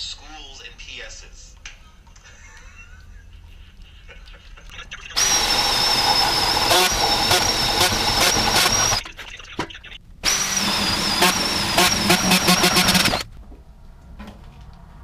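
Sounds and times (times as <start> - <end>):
cordless drill whining: 5.2 - 9.0, 10.2 - 13.3.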